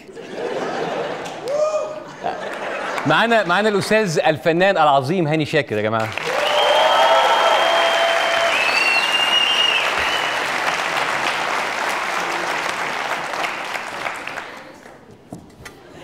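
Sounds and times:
audience applauding: 0:06.0 - 0:14.9
whistles: 0:06.4 - 0:10.5.

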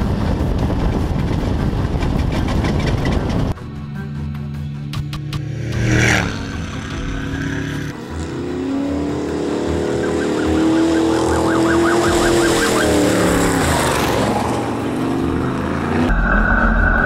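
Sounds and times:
race truck passing by: 0:05.3 - 0:17.0.

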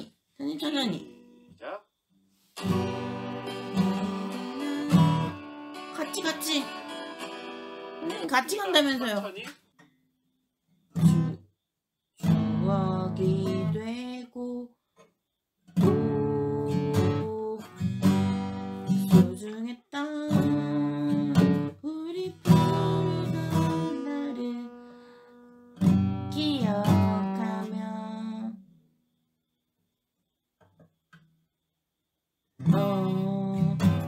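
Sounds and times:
acoustic guitar strumming: 0:02.6 - 0:09.4, 0:10.9 - 0:11.5, 0:12.2 - 0:14.0, 0:15.8 - 0:19.5, 0:20.3 - 0:28.4, 0:32.6 - 0:34.0.

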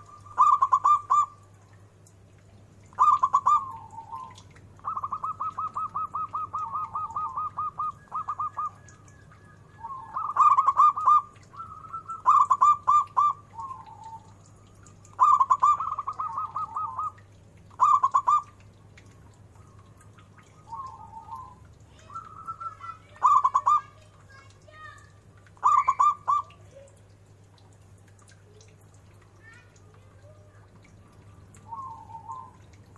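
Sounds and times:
dove cooing: 0:00.0 - 0:01.4, 0:02.9 - 0:14.4, 0:15.1 - 0:17.2, 0:17.8 - 0:18.5, 0:20.5 - 0:24.0, 0:25.6 - 0:27.0, 0:30.2 - 0:32.7.

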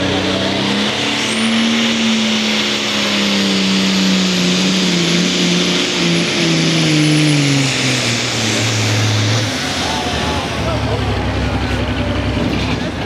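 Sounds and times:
diesel tractor engine straining: 0:00.0 - 0:13.0
high turbo whistle: 0:00.7 - 0:10.4.

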